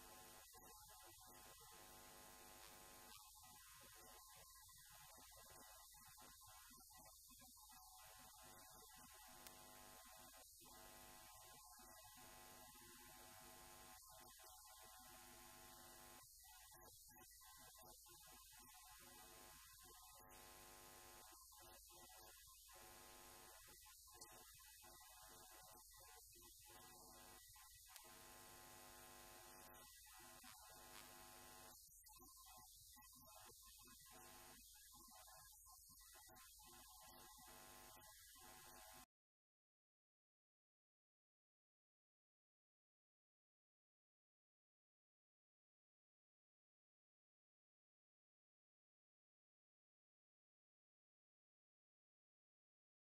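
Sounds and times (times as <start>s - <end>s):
electrical mains hum with hiss: 0.0s - 39.0s.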